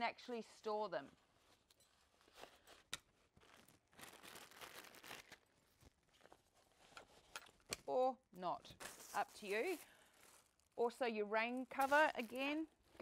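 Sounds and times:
fabric rustling: 0:08.8 - 0:10.9, 0:11.7 - 0:13.0.

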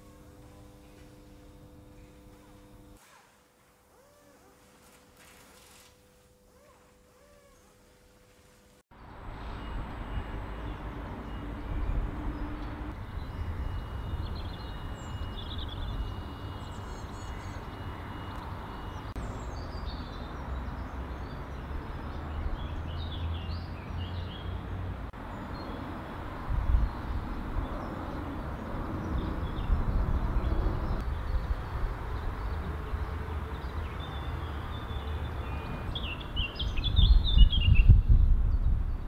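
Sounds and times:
faint high whine: 0:00.0 - 0:08.8, 0:11.9 - 0:19.2
small birds chirping: 0:26.7 - 0:39.0.

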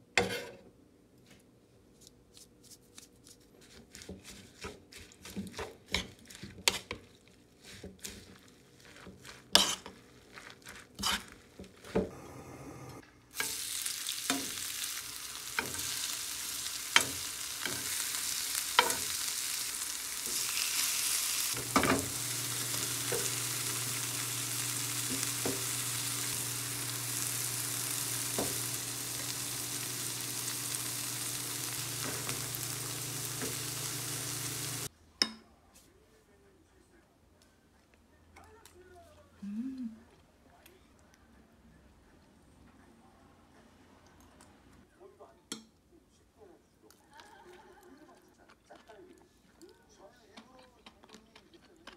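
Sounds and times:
spoon mixing batter in bowl: 0:02.0 - 0:12.1
oil sizzling in pan: 0:13.3 - 0:34.9.

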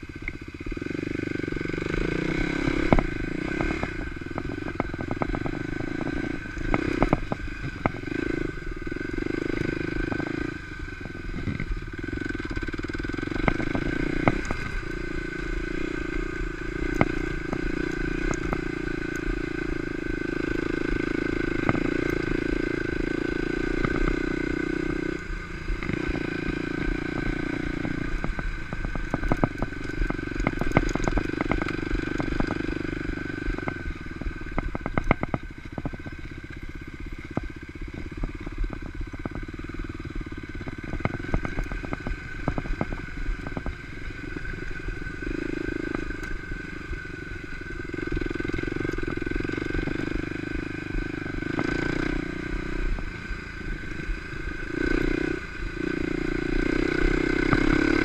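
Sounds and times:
dirt bike engine running: 0:00.0 - 0:58.0
bike knocking and rattling: 0:02.6 - 0:15.1, 0:15.7 - 0:44.7.

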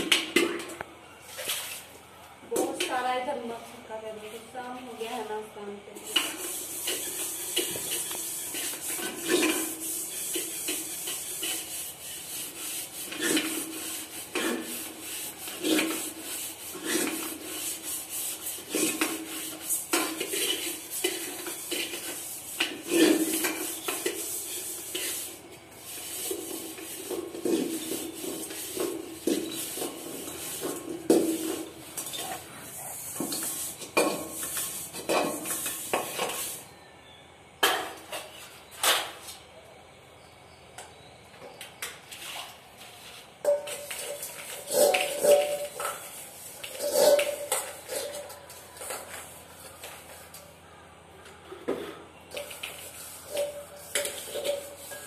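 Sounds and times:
metal dishes scrubbed and rinsed: 0:06.0 - 0:36.6, 0:43.1 - 0:50.4, 0:51.7 - 0:55.0.

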